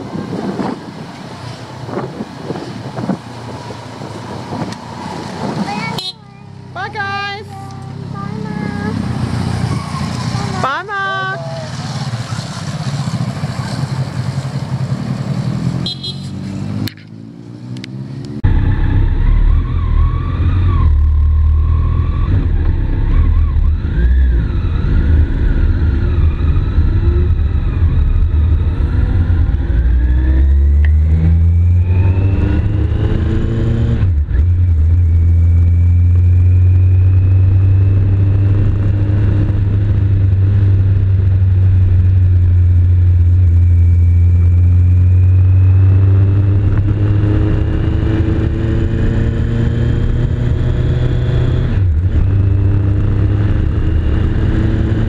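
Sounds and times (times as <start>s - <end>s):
motorcycle engine accelerating: 7.0s - 55.0s
another motorcycle pulling away: 11.7s - 55.0s.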